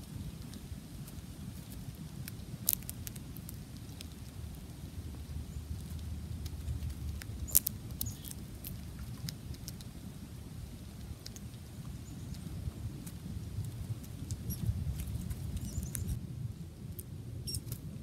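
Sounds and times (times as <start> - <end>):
squirrel crunching seeds: 0.0 - 16.2, 16.8 - 18.0
sharp seed cracks: 1.7 - 4.4, 5.8 - 9.9
low rumble: 3.8 - 18.0.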